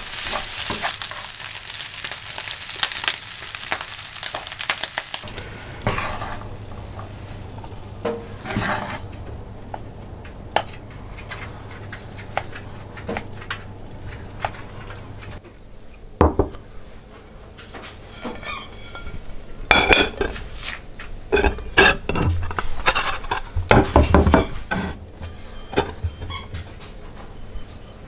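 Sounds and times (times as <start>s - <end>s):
dishes clinking and knocking: 16.2s - 16.6s, 17.7s - 20.4s, 21.3s - 27.0s.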